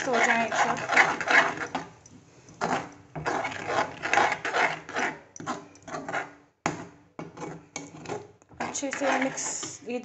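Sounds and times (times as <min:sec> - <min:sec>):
metal spoon scraping a metal pan: 0:00.0 - 0:10.0.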